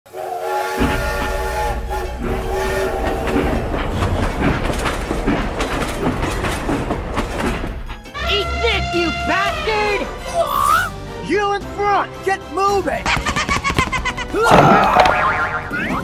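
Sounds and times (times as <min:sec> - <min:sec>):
toy train steam whistle: 0:00.1 - 0:03.2.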